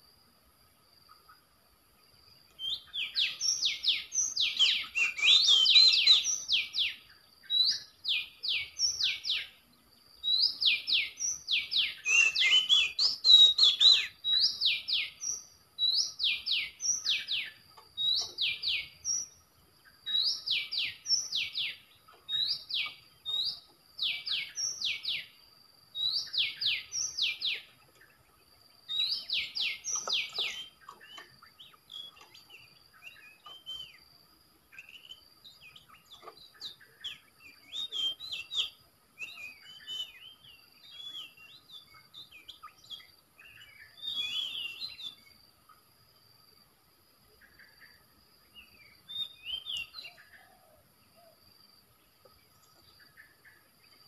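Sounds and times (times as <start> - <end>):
bird whistles from speaker: 4.6 - 6.4, 11.9 - 14.2, 37.7 - 41.6, 44.0 - 45.2.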